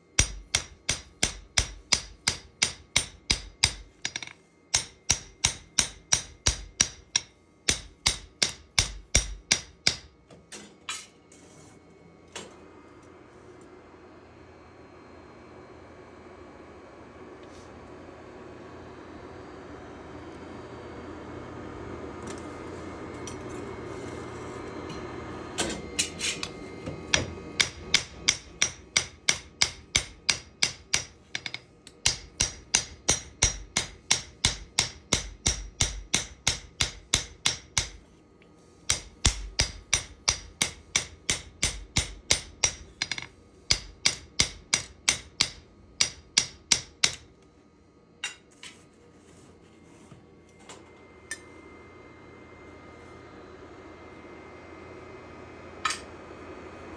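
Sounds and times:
steady rushing hum: 24.5s - 48.4s.

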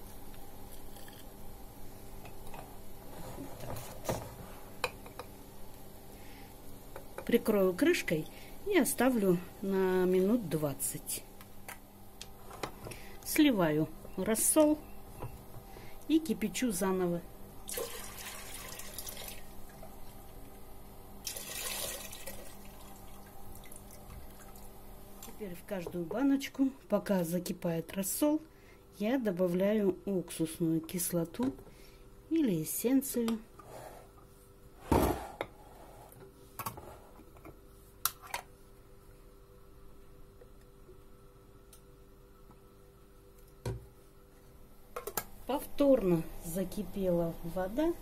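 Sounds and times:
faint steady hum: 0.0s - 48.0s
liquid pouring and splashing: 17.7s - 19.5s, 21.2s - 24.7s.

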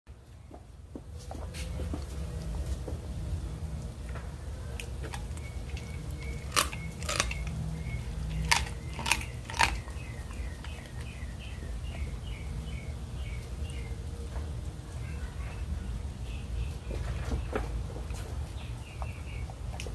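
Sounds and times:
bones crunching: 4.8s - 11.1s
dog wet chewing: 4.8s - 11.2s.

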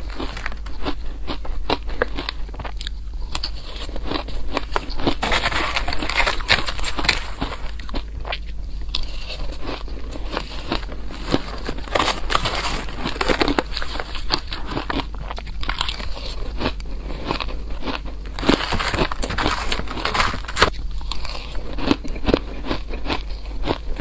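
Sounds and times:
ice being chewed: 0.0s - 24.0s
metal spoon scooping ice: 4.8s - 7.6s.

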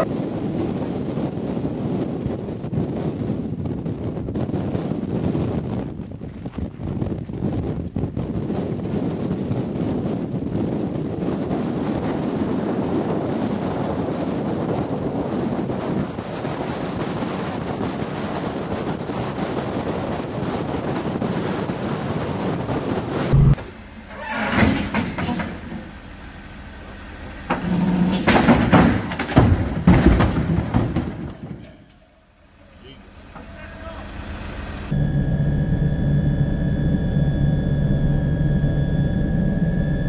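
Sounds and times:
strong wind buffeting microphone: 0.0s - 23.9s.

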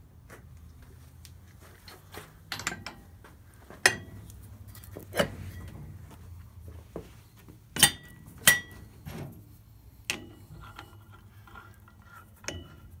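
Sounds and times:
metal parts clinking: 2.5s - 3.1s.

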